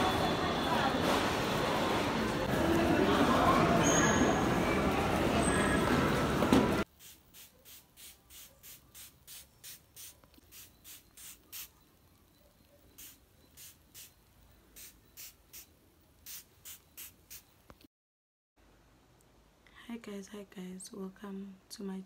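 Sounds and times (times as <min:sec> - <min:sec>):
spray bottle spritzing: 0:06.9 - 0:11.8, 0:12.9 - 0:17.6.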